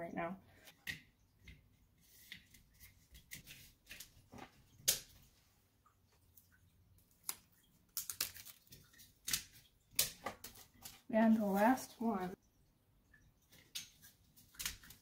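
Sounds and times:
adhesive strip backings peeled: 7.2 - 11.0.

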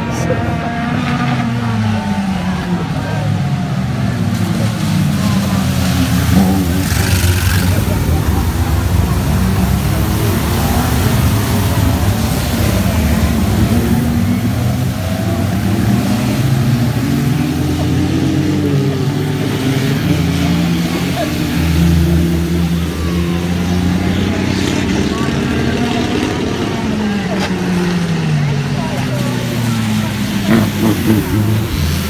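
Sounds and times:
racing car engines revving: 0.0 - 32.0
tyres hissing through water spray: 4.4 - 24.9, 29.1 - 32.0.

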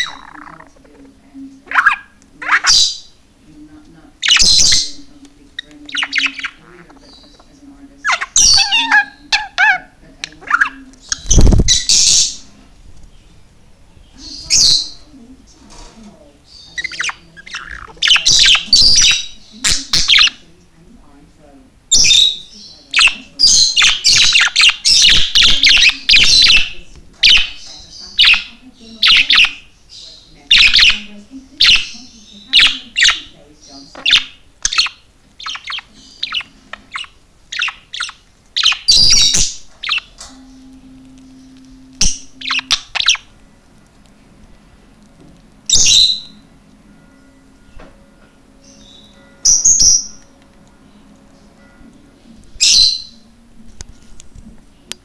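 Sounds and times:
budgerigar chirping: 0.0 - 3.2, 4.2 - 12.5, 14.1 - 15.1, 16.5 - 20.5, 21.9 - 40.6, 41.3 - 43.4, 45.7 - 46.5, 48.6 - 50.4, 52.6 - 53.3.

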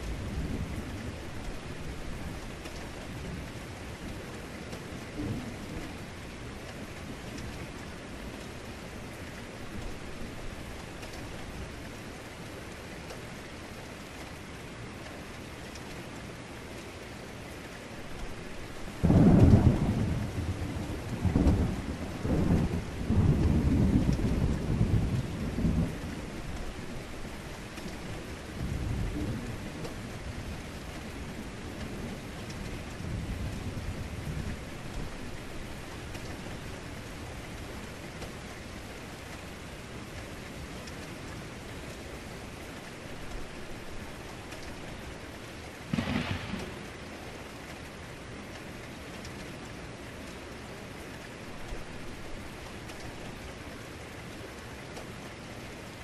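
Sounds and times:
heavy rain: 0.0 - 56.0
thunder rumbling: 19.0 - 27.4, 45.8 - 47.4.

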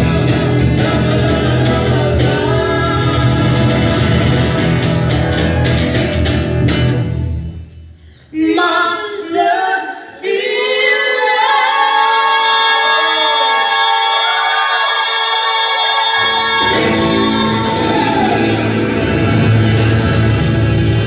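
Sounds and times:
heavy drum beat: 0.0 - 7.0.

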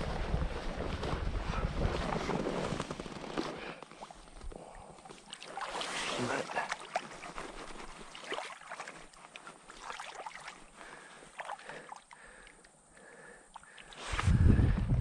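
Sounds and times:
wind rumble on microphone: 0.0 - 2.8, 14.0 - 15.0
river water splashing and gurgling: 1.7 - 12.6.

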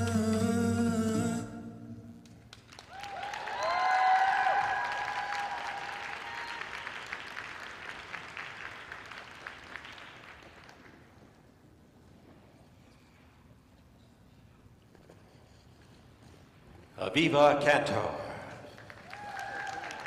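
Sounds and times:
audience applauding: 2.2 - 11.2, 18.7 - 20.0
people cheering: 2.7 - 7.3, 18.9 - 20.0.

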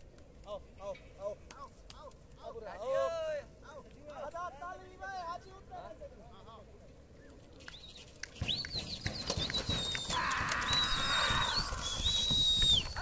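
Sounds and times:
sharp claps or knocks: 7.7 - 11.4
long shrill whistles: 8.5 - 13.0.

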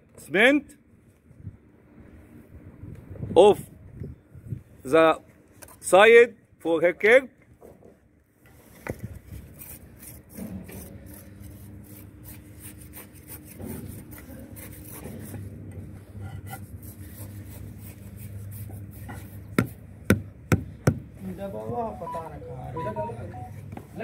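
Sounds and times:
trowel scraping mortar: 8.6 - 15.5
hammer tapping concrete kerb: 19.6 - 21.1.

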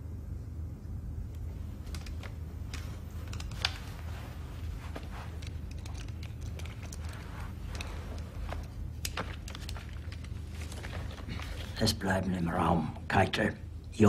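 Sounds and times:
low room hum: 0.0 - 14.0
small clicks and rustles: 1.3 - 11.8.

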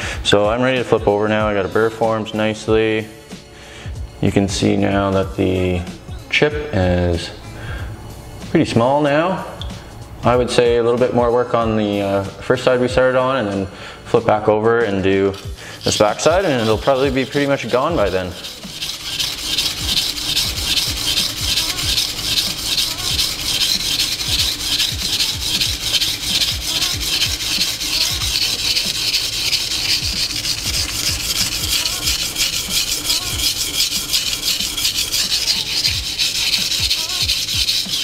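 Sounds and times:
knife grinding on whetstone: 15.1 - 38.0.

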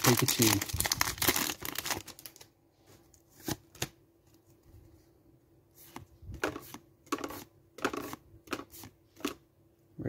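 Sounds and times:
soft card rustling: 5.7 - 9.4.

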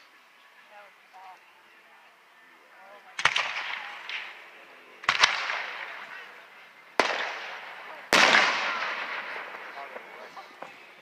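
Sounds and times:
fireworks bursting: 3.1 - 11.0.

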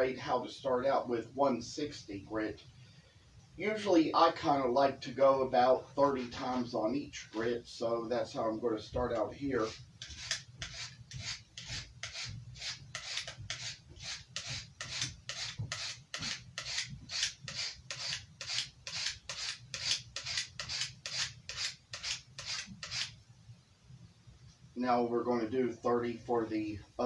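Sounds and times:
knife scraping on sharpening plate: 9.6 - 23.1.

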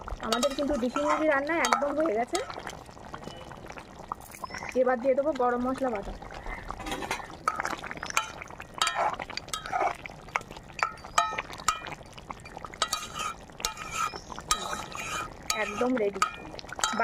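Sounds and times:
wet squelching of gravy: 0.0 - 10.7, 11.3 - 17.0
spatula clinking against metal pan: 0.3 - 2.0, 8.2 - 9.8, 12.8 - 14.9, 15.5 - 17.0.

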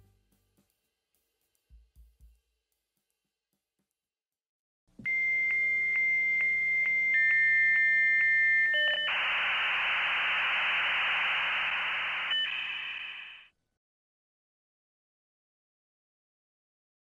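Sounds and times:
lower modem tone: 5.0 - 13.5
modem hissing noise: 9.0 - 13.5.

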